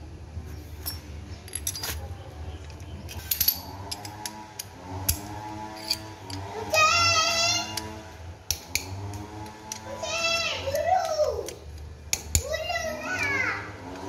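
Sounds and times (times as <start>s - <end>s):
wrench clinking on metal: 0.8s - 6.5s.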